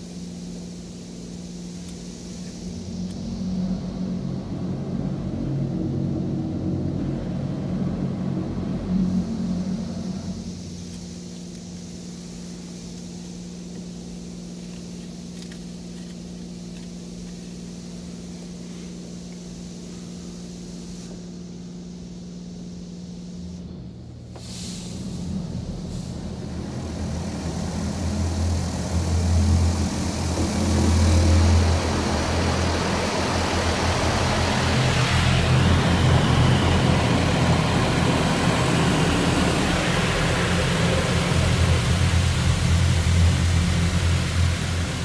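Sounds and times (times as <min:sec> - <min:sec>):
rushing noise with deep drone: 0:00.0 - 0:18.8, 0:19.9 - 0:45.0
car wash machine hum: 0:23.7 - 0:45.0.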